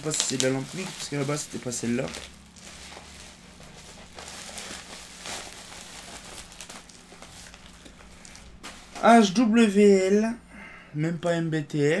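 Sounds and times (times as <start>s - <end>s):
bubble wrap rustling and crinkling: 0.0s - 9.6s.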